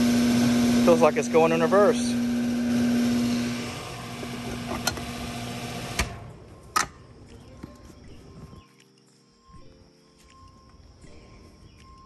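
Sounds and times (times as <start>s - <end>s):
fan motor humming: 0.0s - 6.2s.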